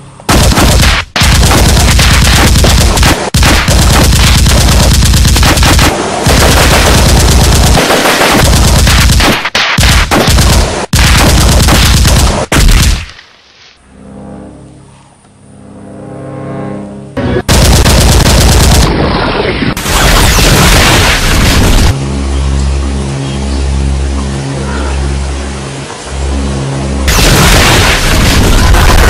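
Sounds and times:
machine-gun fire: 0.3 - 13.1, 17.5 - 22.0, 27.1 - 29.0.

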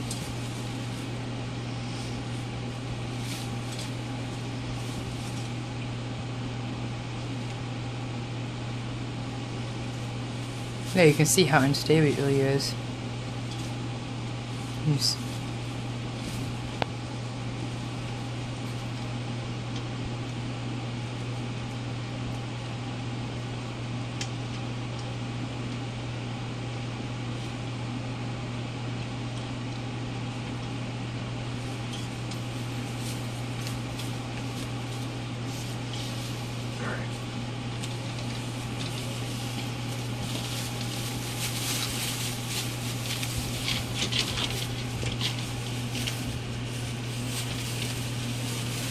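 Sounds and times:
paws rustling through newspaper: 0.0 - 5.9, 9.4 - 19.1, 31.4 - 48.9
steady low hum: 0.0 - 48.9.

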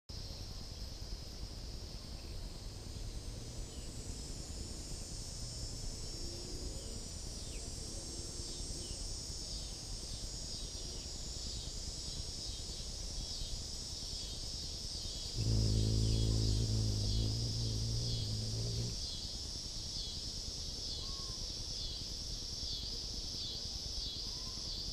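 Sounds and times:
low outdoor background noise: 0.1 - 24.9
insect chorus trilling: 15.2 - 22.8
hummingbird wings humming: 15.3 - 19.2.

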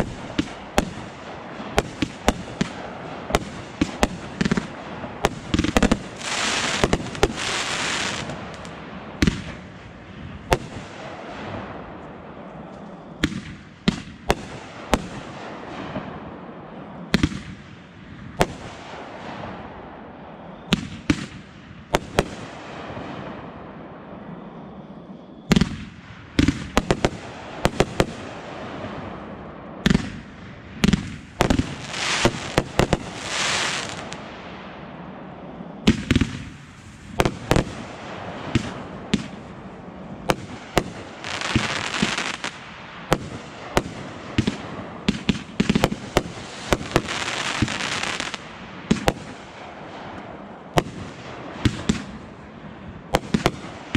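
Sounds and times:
fireworks hissing: 3.4 - 9.6, 31.4 - 34.2, 36.6 - 42.8, 44.4 - 49.3.

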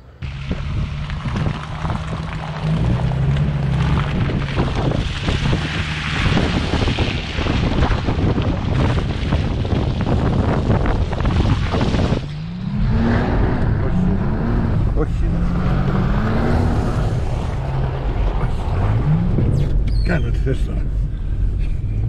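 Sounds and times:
off-road engine running hard: 0.0 - 22.0
wind buffeting microphone: 0.2 - 20.1.

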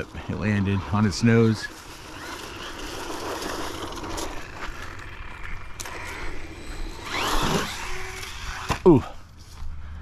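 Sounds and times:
tyres scrabbling on pavement and leaves: 0.0 - 9.7
electric motor whine: 1.6 - 8.9.

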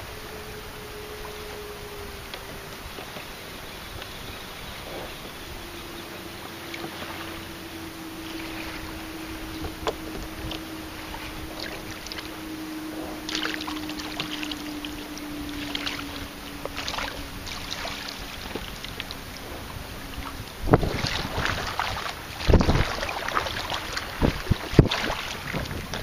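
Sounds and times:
faint steady hum: 0.0 - 26.0
water lapping against kayak: 0.0 - 26.0
paddle splashes: 0.6 - 26.0.

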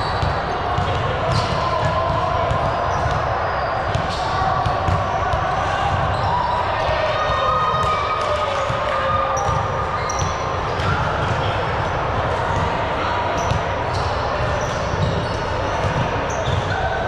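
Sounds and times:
echoing hall noise: 0.0 - 17.0
ball bouncing on court floor: 0.2 - 3.3, 3.9 - 5.4, 13.4 - 16.7
shoe squeaks: 9.4 - 10.5, 13.4 - 16.9.

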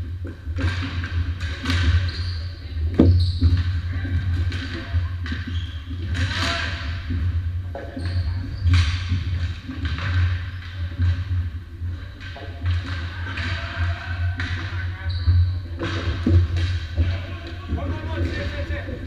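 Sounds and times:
shoe squeaks: 1.9 - 3.9, 5.3 - 6.1, 7.8 - 9.2, 14.8 - 15.8.

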